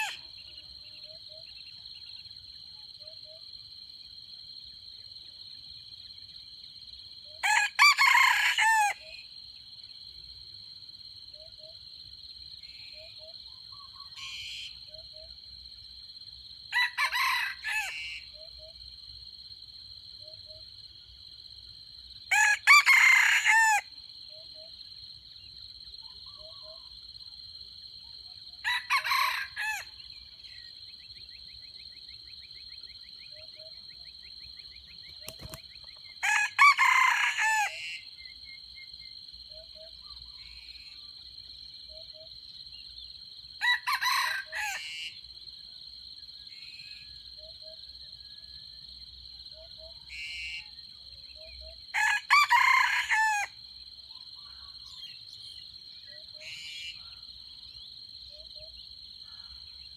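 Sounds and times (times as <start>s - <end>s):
rooster crowing: 0.0s - 0.2s, 7.4s - 9.2s, 16.7s - 18.2s, 22.3s - 23.9s, 28.6s - 30.0s, 36.2s - 38.0s, 43.6s - 45.1s, 51.9s - 53.6s.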